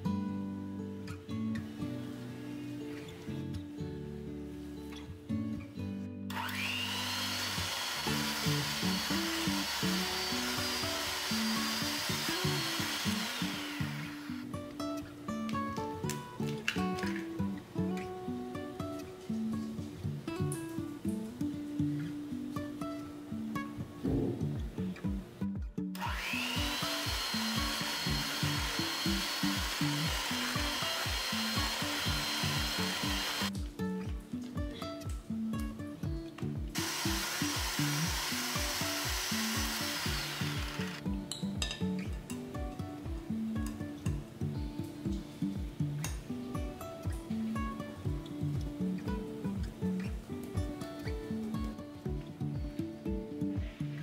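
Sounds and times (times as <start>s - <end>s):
background music: 0.0s - 54.0s
electric hand mixer whining: 6.3s - 14.5s, 26.0s - 33.5s, 36.8s - 41.1s.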